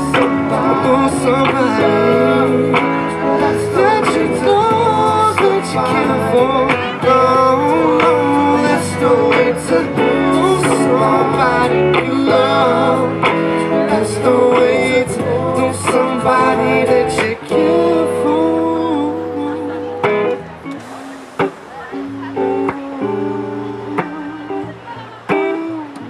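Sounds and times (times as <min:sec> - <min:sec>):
man singing into a microphone: 0:00.0 - 0:20.4
plucked electric guitar: 0:00.0 - 0:26.0.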